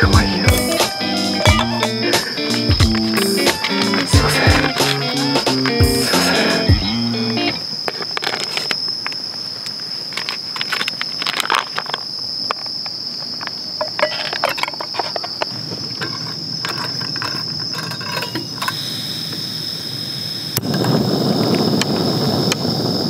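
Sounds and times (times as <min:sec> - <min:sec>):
crickets trilling: 0:00.0 - 0:23.0
plastic pouch crinkling: 0:10.0 - 0:12.7.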